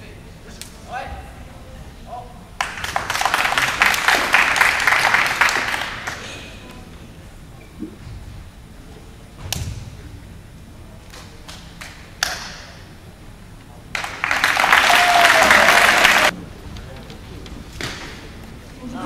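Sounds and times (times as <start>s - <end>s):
loud applause: 2.6s - 6.5s, 13.9s - 16.4s
hands slapping: 11.0s - 12.8s.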